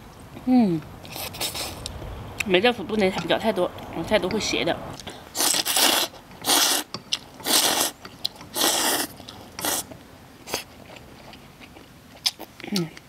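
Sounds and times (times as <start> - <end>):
person slurping noodles: 1.0 - 1.9, 5.3 - 9.9
person chewing: 1.0 - 2.5, 5.0 - 13.0.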